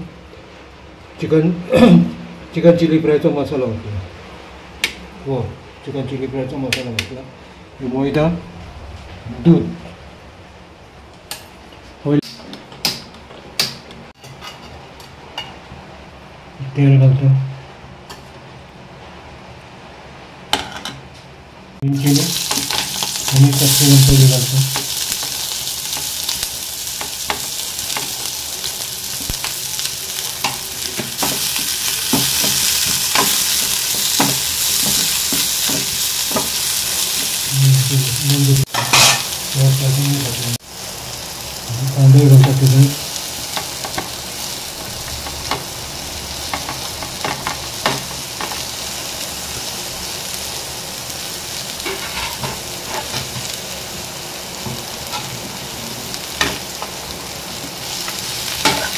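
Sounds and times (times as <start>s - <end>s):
spices sizzling in hot oil: 21.8s - 58.9s.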